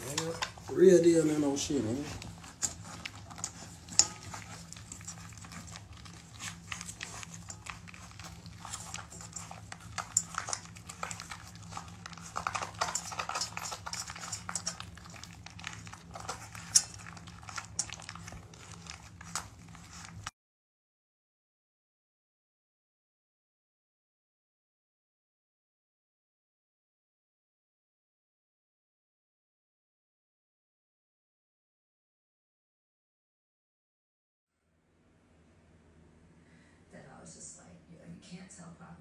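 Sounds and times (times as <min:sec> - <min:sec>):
puppies chewing and lapping: 0:00.0 - 0:20.3
steady low hum: 0:00.0 - 0:20.3.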